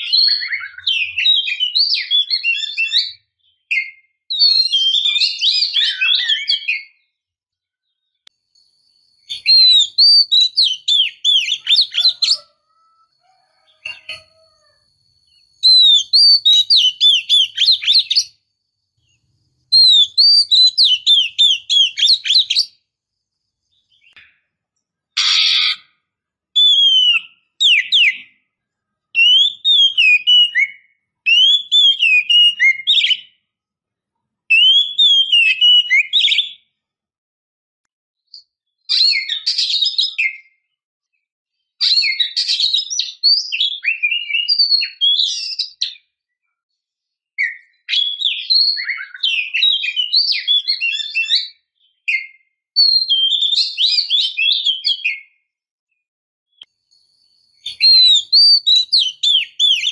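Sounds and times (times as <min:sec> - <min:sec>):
bird singing whistled phrases: 0:00.0 - 0:07.0, 0:09.3 - 0:12.5, 0:15.6 - 0:18.4, 0:19.7 - 0:22.8, 0:26.6 - 0:28.3, 0:29.2 - 0:33.4, 0:34.5 - 0:36.6, 0:42.0 - 0:46.0, 0:47.4 - 0:55.4, 0:57.6 - 0:59.9.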